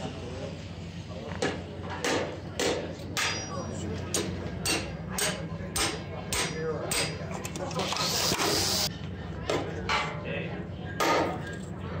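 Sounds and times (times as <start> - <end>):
hammer striking metal on anvil: 2.0 - 7.2.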